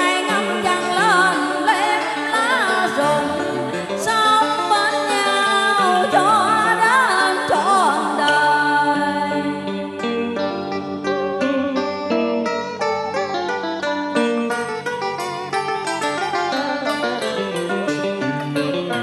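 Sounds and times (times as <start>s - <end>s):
woman singing into a microphone: 0.0s - 10.8s
karaoke backing track: 0.0s - 19.0s.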